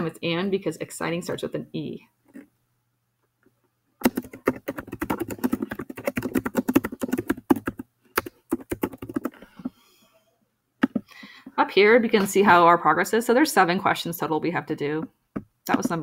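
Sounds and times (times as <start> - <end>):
sharp keyboard click: 4.0 - 9.4
fast typing on keyboard: 4.0 - 9.5.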